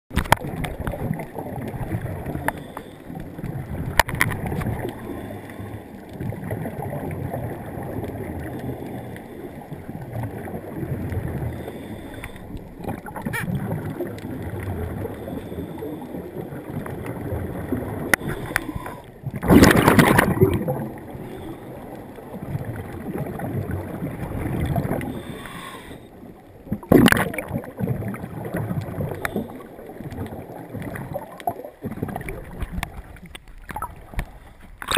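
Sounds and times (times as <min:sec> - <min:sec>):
diver's exhaled bubbles gurgling: 0:00.1 - 0:34.9
muffled underwater noise: 0:00.1 - 0:34.9.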